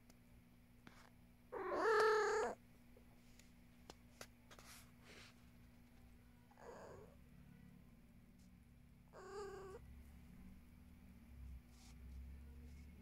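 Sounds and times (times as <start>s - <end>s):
cat meowing: 1.5s - 2.6s, 9.1s - 9.8s
soft breaths: 3.0s - 8.6s, 11.3s - 13.0s.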